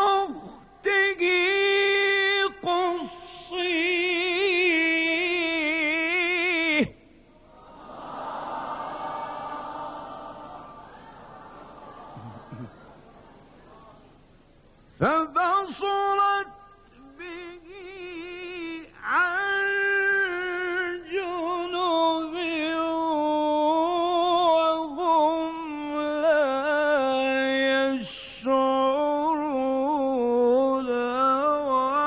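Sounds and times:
man chanting: 0.0 - 7.0, 15.0 - 32.0.

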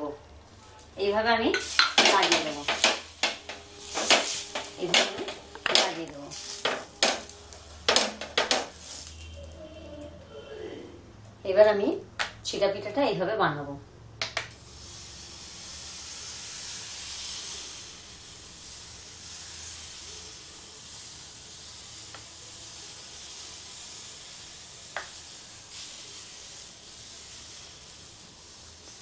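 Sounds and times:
batter sizzling on hot griddle: 1.5 - 9.7, 14.5 - 29.0.

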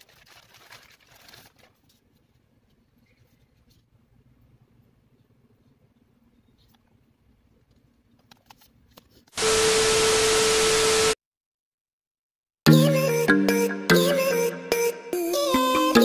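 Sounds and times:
loud static hiss with hum: 9.4 - 11.2.

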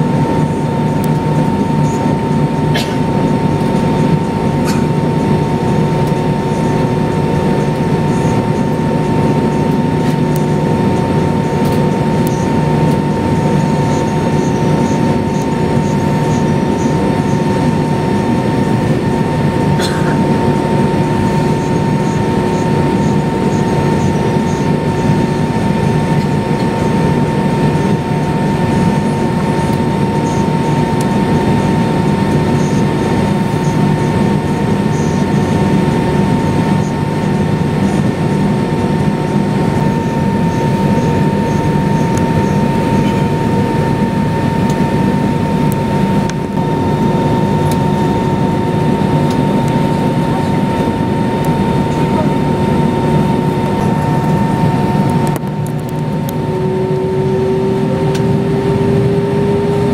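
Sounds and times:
jet engine drone with whine: 0.0 - 59.9.

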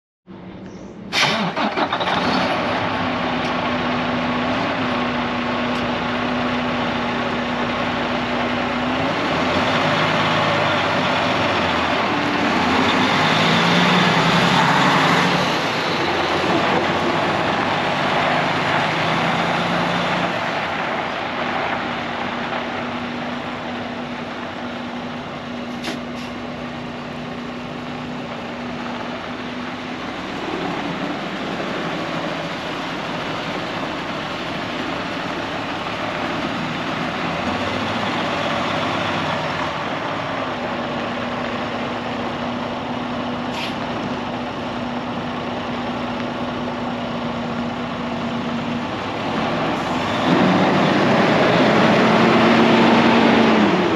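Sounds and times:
truck diesel engine idling: 20.3 - 50.2.

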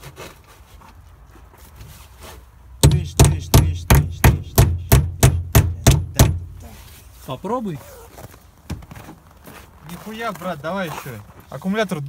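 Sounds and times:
hammer knocking on metal clamp: 2.8 - 6.6.

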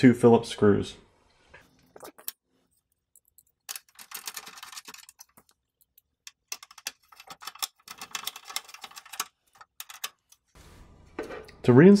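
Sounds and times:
screwdriver clicking and scraping metal: 2.0 - 10.5.

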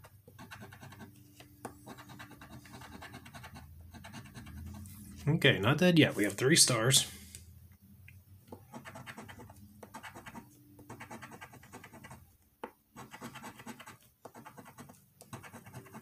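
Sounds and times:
coin scratching lottery ticket: 0.3 - 1.1, 1.8 - 4.9, 8.6 - 12.2, 13.0 - 16.0.

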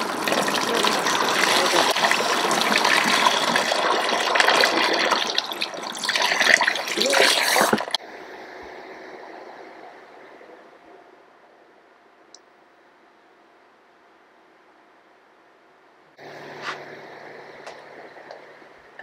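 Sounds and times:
running water splashing: 0.0 - 8.0
faint steady hum: 0.0 - 19.0.

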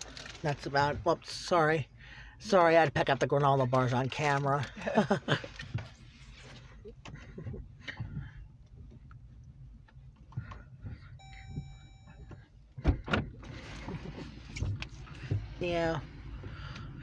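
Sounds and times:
car cabin low rumble: 0.0 - 17.0
wiper motor whine: 10.3 - 17.0
windshield wipers sweeping: 13.4 - 16.6.

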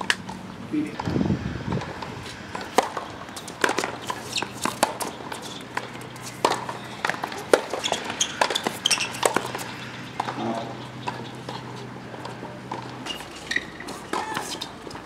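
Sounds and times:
racket hitting tennis ball: 1.8 - 10.4, 11.0 - 15.0
shoe squeaks: 3.3 - 11.9, 13.0 - 14.8.

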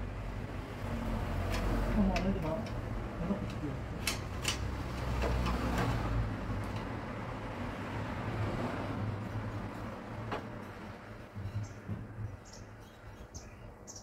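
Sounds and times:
metallic clicks of hand tools: 3.5 - 5.9.

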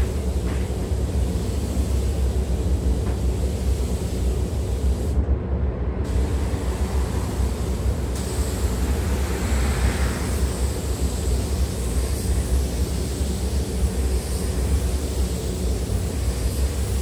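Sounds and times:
spray booth ventilation rumble: 0.0 - 17.0.

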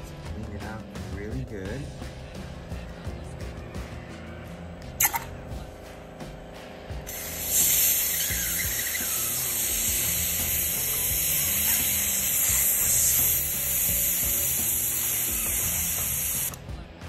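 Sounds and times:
background music: 0.0 - 17.0
airbrush hissing: 7.1 - 16.6.

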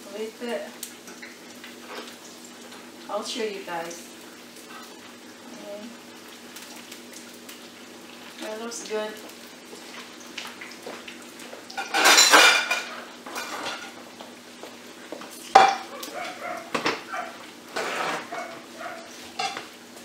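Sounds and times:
dishes and utensils clattering: 11.7 - 14.0, 15.5 - 15.9, 16.7 - 18.6, 19.3 - 19.7.

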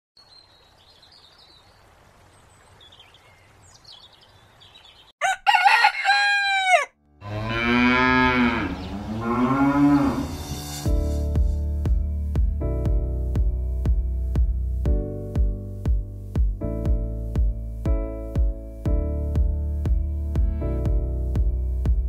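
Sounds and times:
rooster crowing: 5.2 - 7.0
cow mooing: 7.2 - 10.6.

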